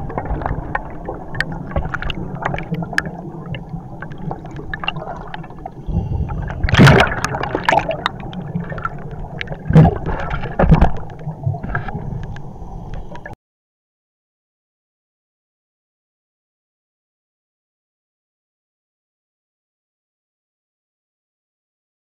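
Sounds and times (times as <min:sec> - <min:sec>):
underwater bubbling: 0:00.0 - 0:13.4.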